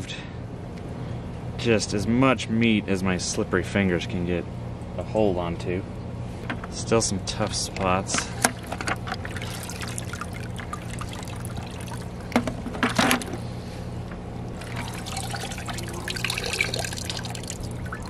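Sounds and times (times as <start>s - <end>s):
steady low hum: 0.0s - 18.0s
water sloshing in plastic bucket: 8.4s - 13.4s, 14.3s - 18.0s
water trickling and dripping: 9.1s - 12.4s, 14.4s - 18.0s.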